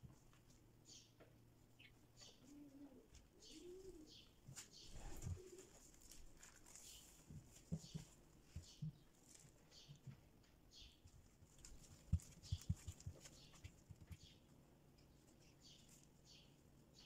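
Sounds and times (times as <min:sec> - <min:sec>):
bird cooing: 0:02.2 - 0:04.3, 0:04.9 - 0:05.9
rustle: 0:02.2 - 0:08.0.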